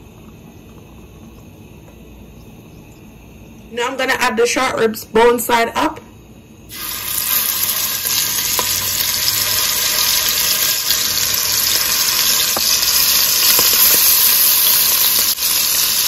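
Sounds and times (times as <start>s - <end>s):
meat sizzling in hot oil: 6.7s - 16.0s.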